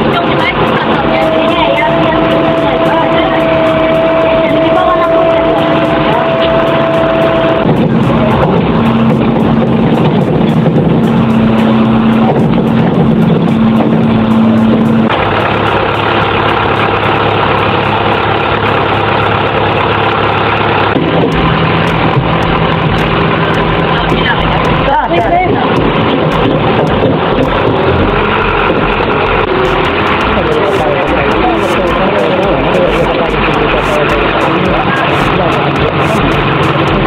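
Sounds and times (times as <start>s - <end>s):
heavy diesel engine running: 0.0s - 37.0s.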